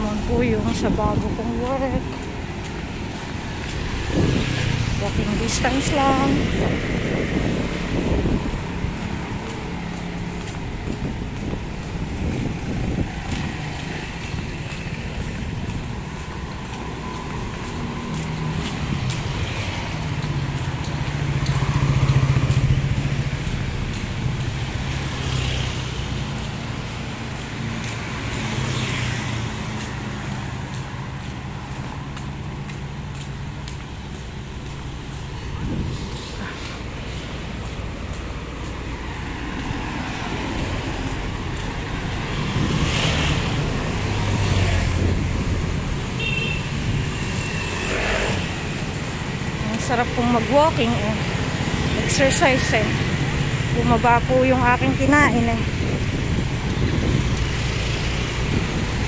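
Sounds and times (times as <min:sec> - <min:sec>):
cars passing: 0:00.0 - 0:59.0
vehicle engine hum: 0:00.0 - 0:59.0.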